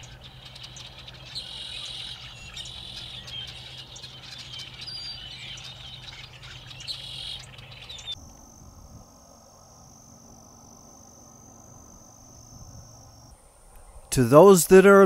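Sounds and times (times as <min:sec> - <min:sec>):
buzzy bird calls: 0:00.0 - 0:08.2
blackbirds chirping: 0:00.0 - 0:08.4, 0:13.2 - 0:15.0.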